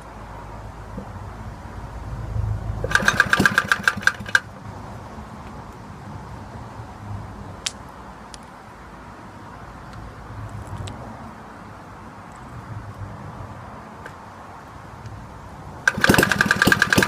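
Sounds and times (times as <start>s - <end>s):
lawnmower engine popping: 2.8s - 4.5s, 15.8s - 17.0s.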